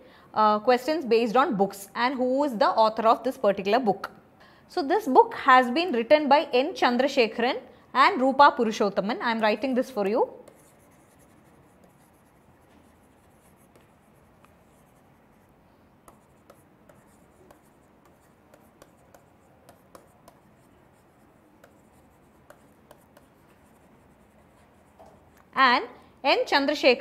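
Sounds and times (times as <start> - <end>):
stylus scratching on tablet: 9.6 - 25.5.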